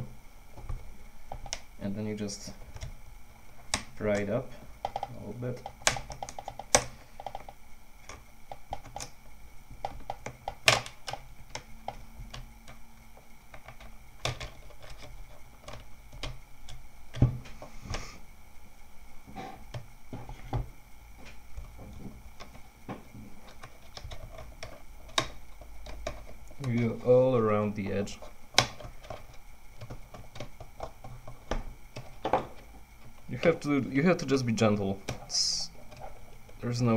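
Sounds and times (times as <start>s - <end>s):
plastic clicking and snapping: 3.7s - 9.2s, 9.8s - 12.8s, 23.4s - 26.9s, 28.2s - 33.3s.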